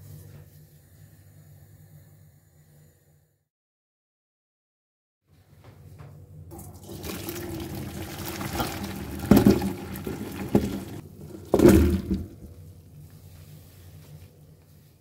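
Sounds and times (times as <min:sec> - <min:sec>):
water splashing into colander: 0:06.5 - 0:12.5
potatoes dropping into colander: 0:07.1 - 0:12.5.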